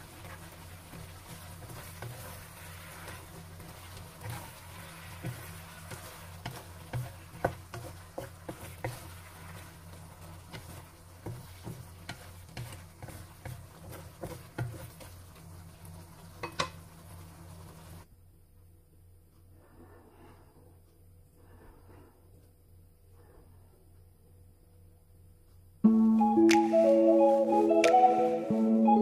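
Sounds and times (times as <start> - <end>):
wooden spatula scraping a wok: 0.0 - 18.0
light sizzling: 0.0 - 18.1.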